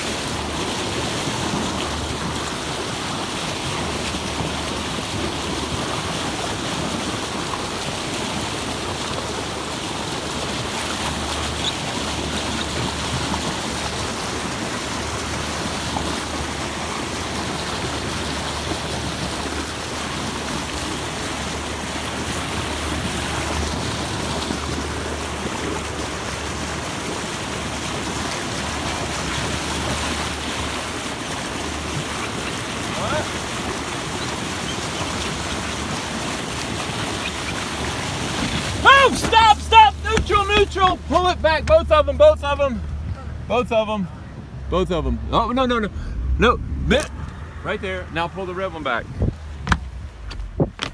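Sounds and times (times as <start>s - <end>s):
bow wave splashing: 0.0s - 50.9s
low steady drone: 44.1s - 50.6s.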